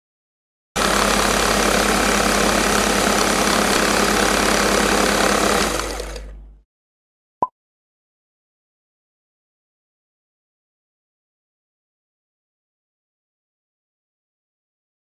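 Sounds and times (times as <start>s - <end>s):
food processor running: 0.8s - 6.5s.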